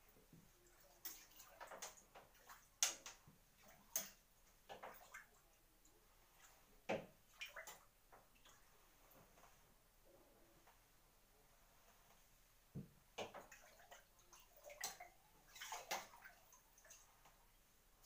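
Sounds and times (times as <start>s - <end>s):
water splashing and lapping: 0.4s - 9.7s, 13.2s - 17.6s.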